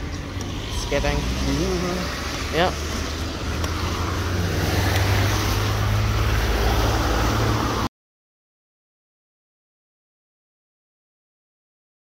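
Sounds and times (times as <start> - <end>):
car engine hum: 0.0 - 7.9
tyre noise on wet road: 0.0 - 7.9.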